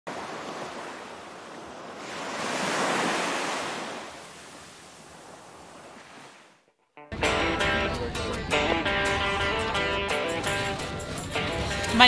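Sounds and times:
wave washing in: 0:00.1 - 0:06.6.

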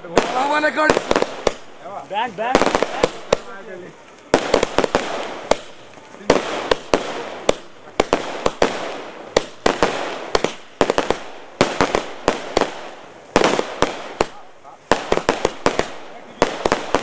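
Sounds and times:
fireworks bangs: 0:00.0 - 0:17.0
fireworks hissing: 0:00.0 - 0:17.0.

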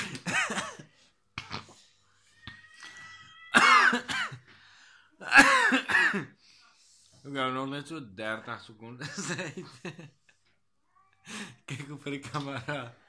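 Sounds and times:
man coughing hard: 0:00.0 - 0:00.9, 0:03.6 - 0:04.5, 0:05.2 - 0:06.3.

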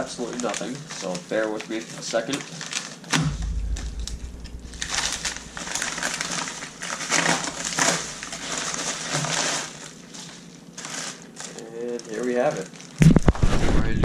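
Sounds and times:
paper crinkling and tearing: 0:00.0 - 0:03.1, 0:05.1 - 0:13.6.

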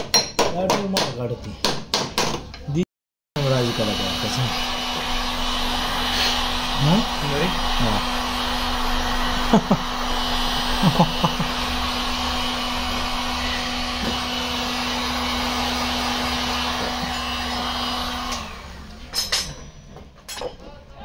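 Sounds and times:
heat gun blowing air: 0:03.4 - 0:19.0.

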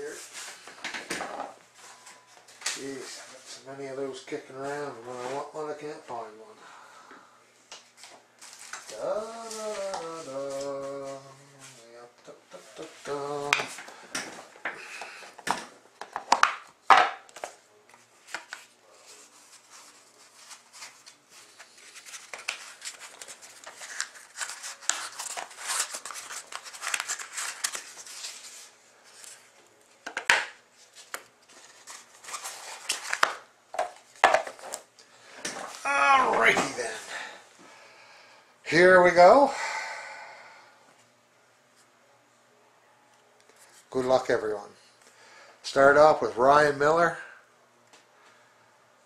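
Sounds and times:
cardboard rustling: 0:17.3 - 0:29.6, 0:30.8 - 0:34.8.

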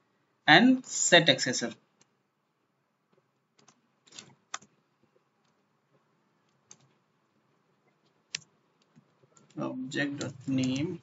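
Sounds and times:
computer keyboard keystrokes: 0:03.6 - 0:04.7, 0:06.5 - 0:06.9, 0:08.3 - 0:11.0.

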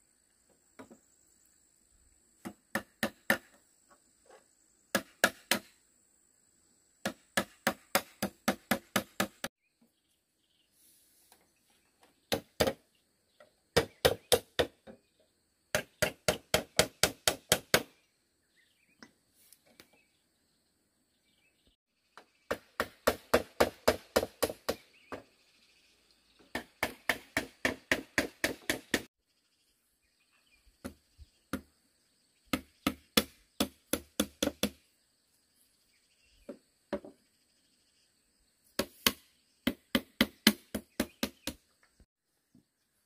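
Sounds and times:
rapid strikes on bamboo: 0:02.4 - 0:03.6, 0:04.9 - 0:05.7, 0:07.0 - 0:09.5, 0:12.3 - 0:12.8, 0:13.8 - 0:14.9, 0:15.8 - 0:18.0, 0:22.5 - 0:25.2, 0:26.5 - 0:29.1, 0:32.5 - 0:34.8, 0:38.8 - 0:41.6.

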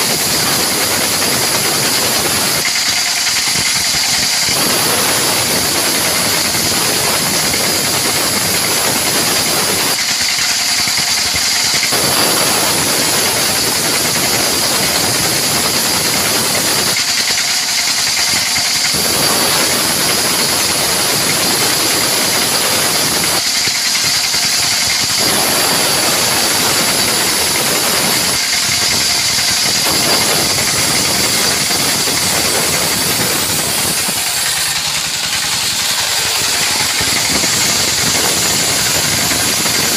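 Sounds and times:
band sawmill sawing log: 0:00.0 - 0:39.9.

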